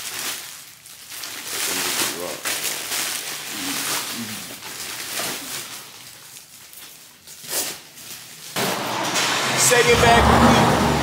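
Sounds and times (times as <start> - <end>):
plastic packages rustling: 0.0 - 8.6.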